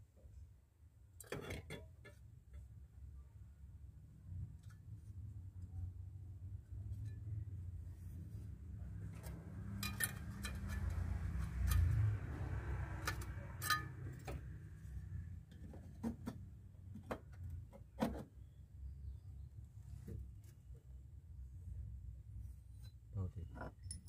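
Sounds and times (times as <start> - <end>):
low steady rumble: 2.4 - 17.8.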